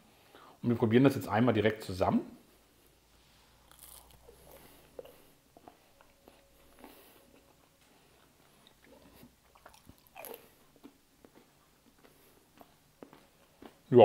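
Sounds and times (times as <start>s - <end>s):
person chewing: 3.5s - 13.9s.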